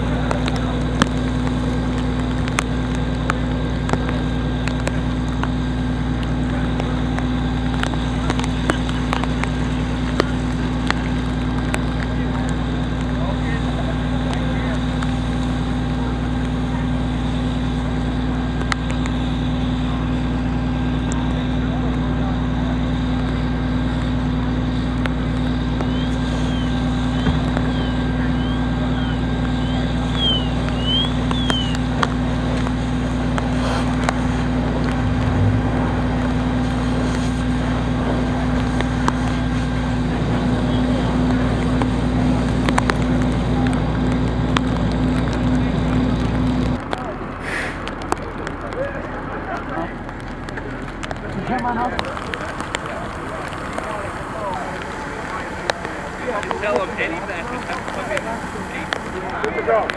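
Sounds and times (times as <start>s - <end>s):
sharp cracks: 0.0s - 19.2s, 23.2s - 48.8s
engine drone: 0.0s - 59.9s
fire hose spraying water: 0.0s - 59.9s.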